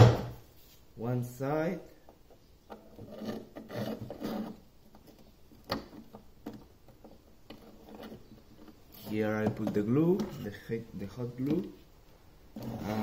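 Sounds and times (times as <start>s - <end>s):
metal rod scraping plastic: 2.7s - 11.8s, 12.5s - 13.0s.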